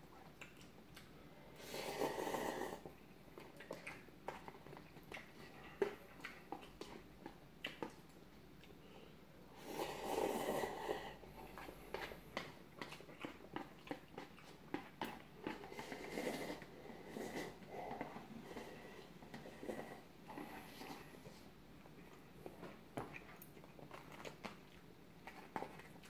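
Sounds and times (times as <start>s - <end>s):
loud noodle slurp: 1.6s - 2.9s, 9.6s - 11.1s, 15.5s - 17.7s.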